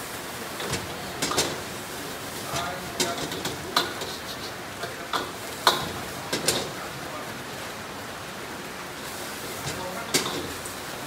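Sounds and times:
gas burner hiss: 0.0s - 7.2s, 9.0s - 11.0s
metal ladle clanking against wok: 5.1s - 6.7s.

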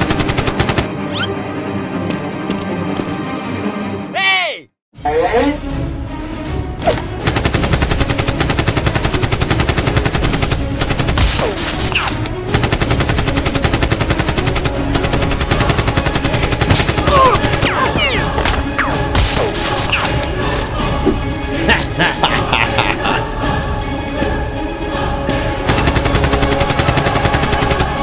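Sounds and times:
automatic gunfire: 0.0s - 0.9s, 7.2s - 11.3s, 12.5s - 17.8s, 25.7s - 28.0s
background music: 0.0s - 28.0s.

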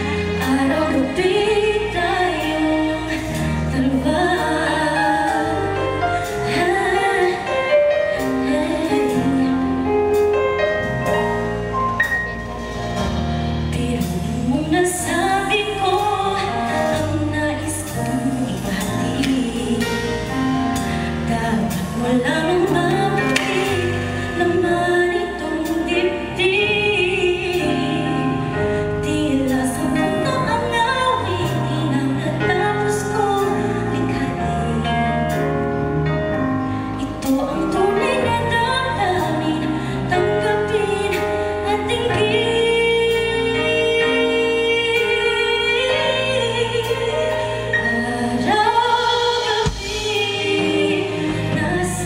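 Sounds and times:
woman singing a ballad: 0.0s - 11.2s, 13.6s - 52.0s
rock band playing: 5.4s - 15.4s, 49.2s - 52.0s.

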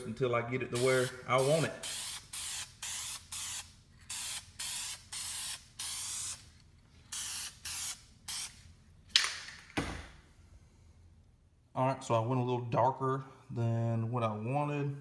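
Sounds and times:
spray can hissing: 0.8s - 6.5s, 7.1s - 8.6s.

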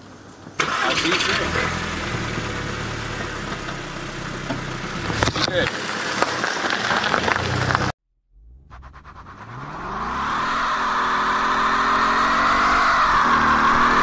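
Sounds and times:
engine revving high: 0.6s - 5.7s, 7.4s - 14.0s
car engine pulling away: 0.6s - 14.0s
tyre squealing: 8.6s - 14.0s.

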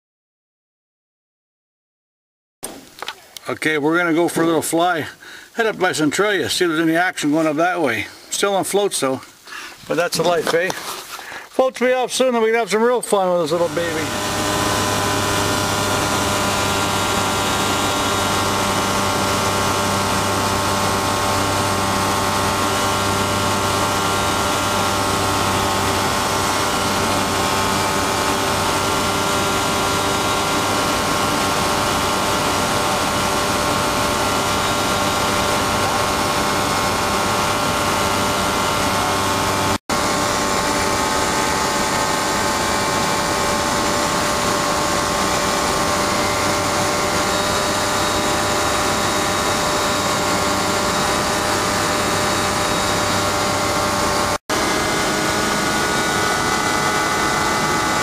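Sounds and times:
plane engine and propeller droning: 13.4s - 58.0s.

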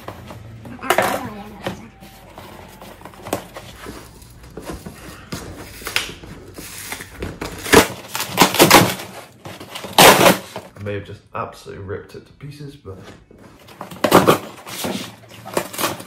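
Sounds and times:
cardboard ripping: 2.6s - 10.6s, 13.9s - 16.0s.

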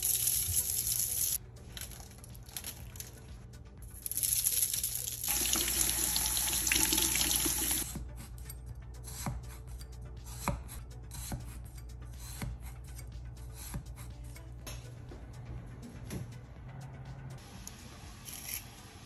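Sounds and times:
knife stabbing potato on board: 10.3s - 11.6s.

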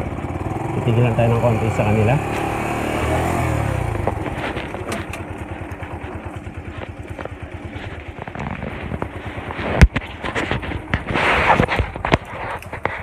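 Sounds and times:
small motorcycle engine: 0.0s - 13.0s
light rattling clicks: 4.0s - 9.3s.

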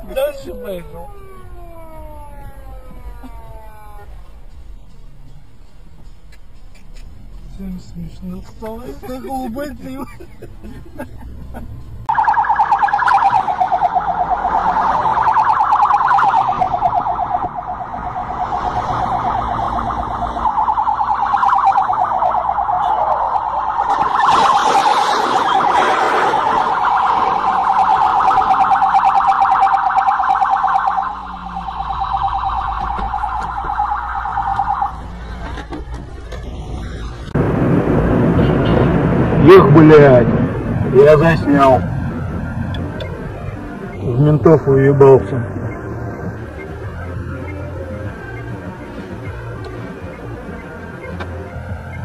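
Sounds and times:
police siren warbling: 0.0s - 4.3s, 12.1s - 35.4s, 40.5s - 51.2s.

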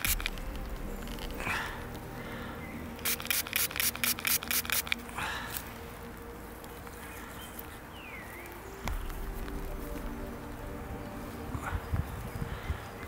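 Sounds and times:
spray bottle squirting: 0.0s - 0.7s, 3.0s - 5.1s.

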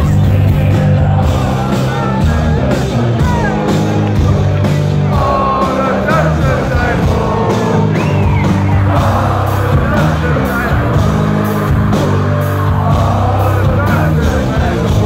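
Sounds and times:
distorted guitars and bass: 0.0s - 15.0s
steady drum beat: 0.0s - 15.0s
person singing: 4.4s - 15.0s.

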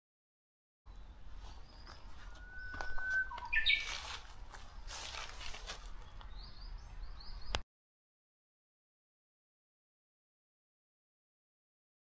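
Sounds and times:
bird whistling song: 0.9s - 4.1s
birds chirping: 0.9s - 7.6s
rustling: 3.7s - 6.0s.

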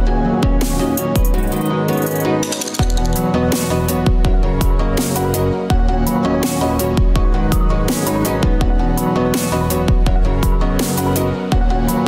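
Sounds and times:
electronic music with bass beat: 0.0s - 12.0s.

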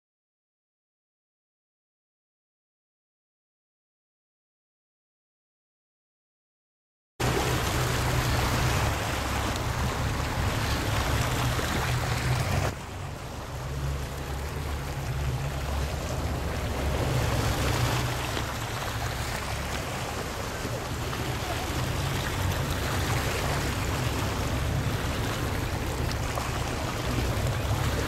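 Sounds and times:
water washing along shore: 7.2s - 28.0s
wind rumbling on microphone: 7.2s - 28.0s.

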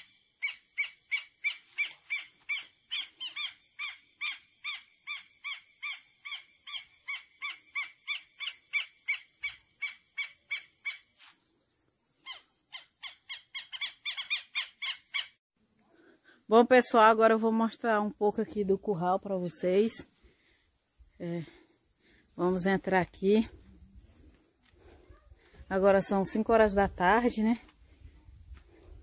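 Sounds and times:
lapwing alarm calls: 0.0s - 11.3s, 12.2s - 15.4s.

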